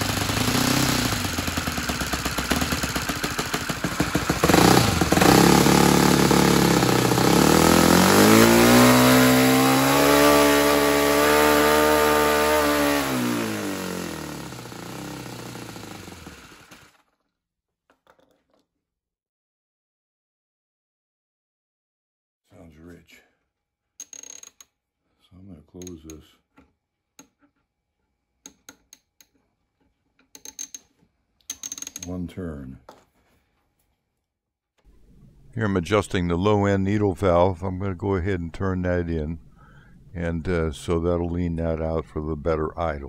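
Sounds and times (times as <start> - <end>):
model engine turning propeller: 0.0 - 17.1.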